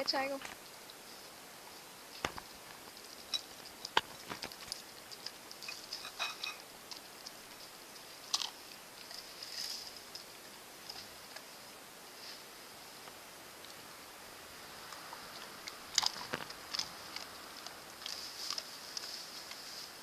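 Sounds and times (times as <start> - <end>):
dog chewing and licking: 2.4 - 11.5, 14.8 - 19.7.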